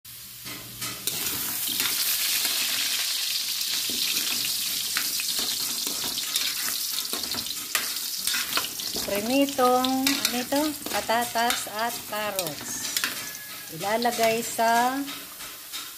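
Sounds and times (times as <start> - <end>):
vegetables sizzling in oil: 0.1 - 15.9
spatula scraping and knocking pan: 3.7 - 15.9.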